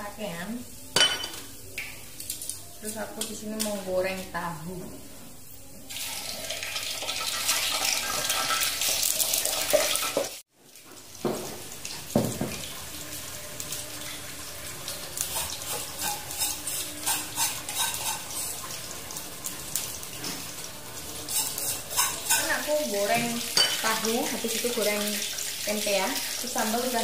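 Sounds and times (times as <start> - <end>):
tofu sizzling in hot oil: 5.9 - 27.0
cookware knock: 12.1 - 12.6.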